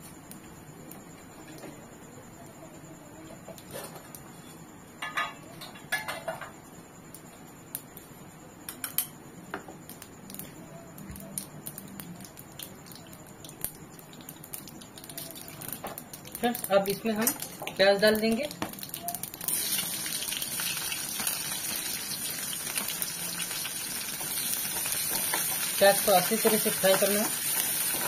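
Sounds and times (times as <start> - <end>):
seeds crackling in hot oil: 9.8 - 28.0.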